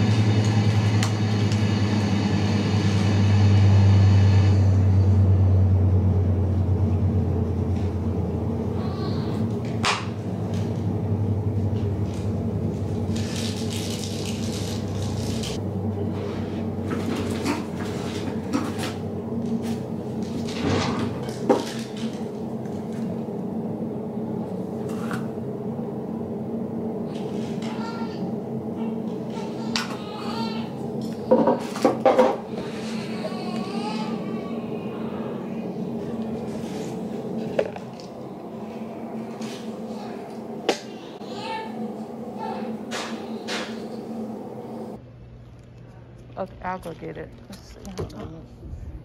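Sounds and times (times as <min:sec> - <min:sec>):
low hum: 0:00.0 - 0:49.0.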